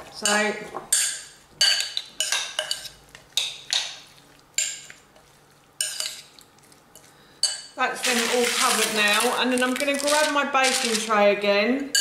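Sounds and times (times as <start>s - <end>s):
metal spoon clinking ceramic bowl: 5.8s - 6.2s.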